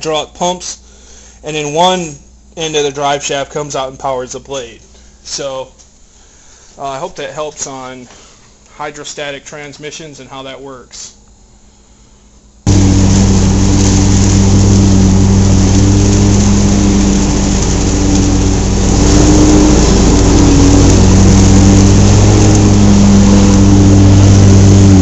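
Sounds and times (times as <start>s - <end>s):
riding mower engine running: 12.7s - 25.0s.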